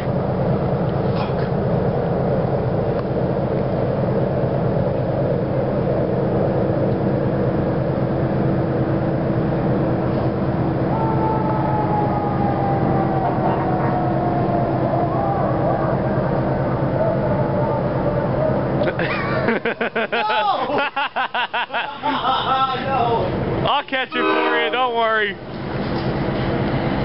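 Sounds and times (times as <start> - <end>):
diesel locomotive engine rumbling: 0.0 - 27.0
thin high tone sliding down: 10.9 - 18.9.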